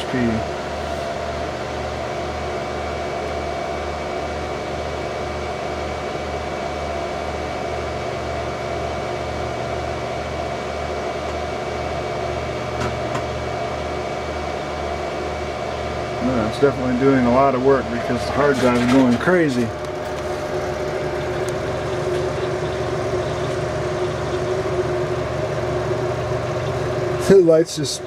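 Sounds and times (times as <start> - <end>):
computer fans humming: 0.0 - 28.0
pulsing low hum: 19.7 - 28.0.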